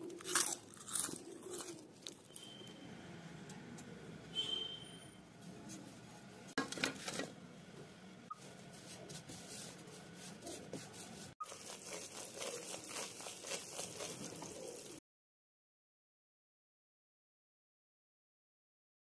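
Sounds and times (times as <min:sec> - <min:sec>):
spatula stirring and scraping in wok: 0:08.3 - 0:15.0.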